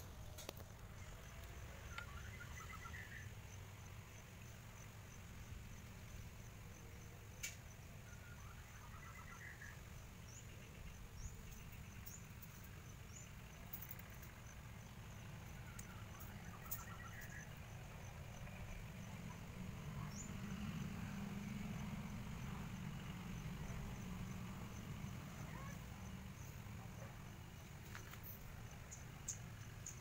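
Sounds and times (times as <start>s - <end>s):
bird chirping: 0.8s - 3.4s, 7.9s - 20.7s.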